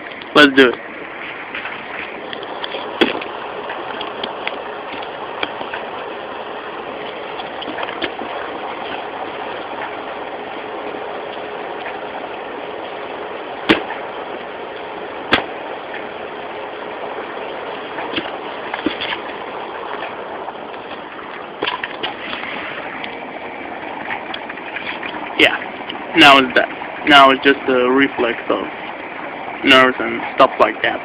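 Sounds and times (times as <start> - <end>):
steady rushing noise: 0.0 - 31.0
sharp knocks: 2.7 - 3.3, 13.6 - 14.0, 15.3 - 15.6, 18.0 - 19.2.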